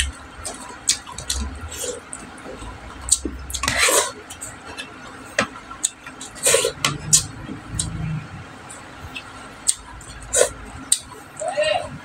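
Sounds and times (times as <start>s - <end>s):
wet chewing and lip-smacking: 5.7s - 8.0s, 9.1s - 11.2s.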